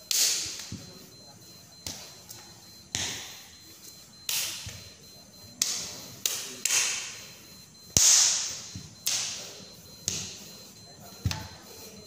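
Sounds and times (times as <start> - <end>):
hand slaps echoing: 0.0 - 0.9, 2.8 - 3.4, 4.3 - 4.8, 5.5 - 7.2, 7.9 - 10.4.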